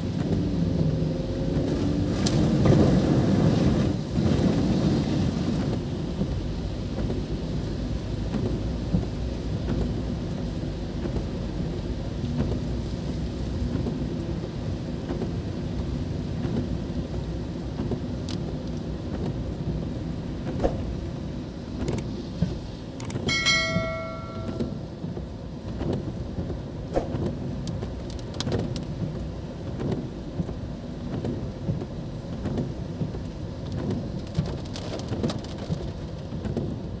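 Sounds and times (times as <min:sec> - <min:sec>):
heavy rain on car roof: 0:00.0 - 0:23.3, 0:24.5 - 0:37.0
short bell-like chime: 0:23.3 - 0:24.9.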